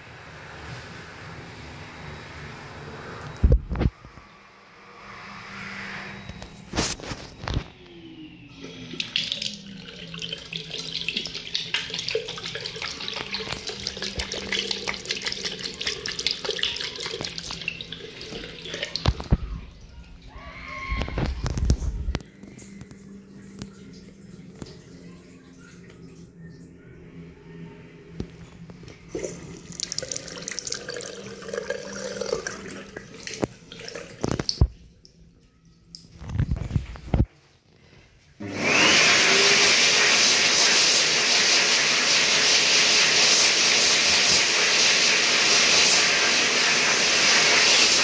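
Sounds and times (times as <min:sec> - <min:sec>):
tap water splashing into basin: 0:10.2 - 0:19.4
faint low hum: 0:15.4 - 0:31.0.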